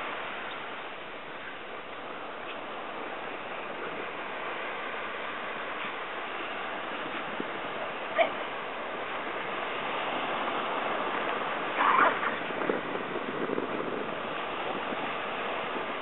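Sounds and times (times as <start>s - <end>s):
dog yelping: 8.2s - 8.4s, 11.8s - 12.4s.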